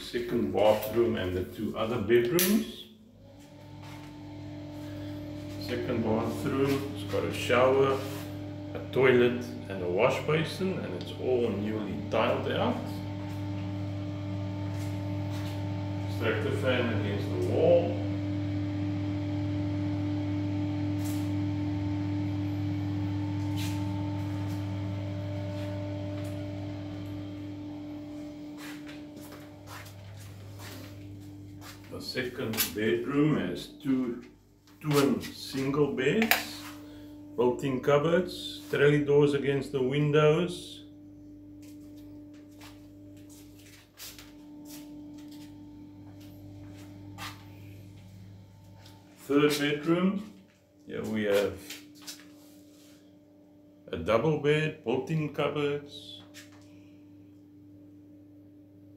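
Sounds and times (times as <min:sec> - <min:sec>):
extractor fan humming: 0:00.0 - 0:58.9
footsteps on tiled floor: 0:14.6 - 0:15.7, 0:28.4 - 0:32.0, 0:41.6 - 0:49.3, 0:51.3 - 0:53.0.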